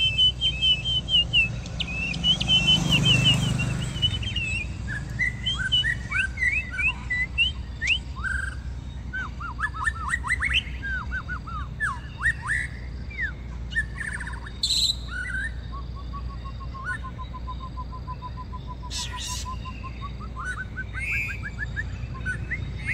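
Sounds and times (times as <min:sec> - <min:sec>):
bird singing whistled phrases: 0:00.0 - 0:22.9.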